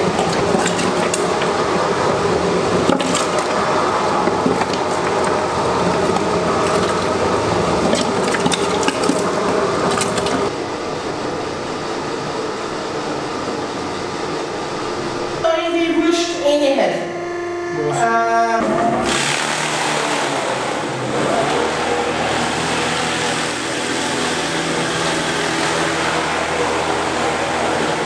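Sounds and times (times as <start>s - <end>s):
electric meat grinder running: 18.9s - 28.0s.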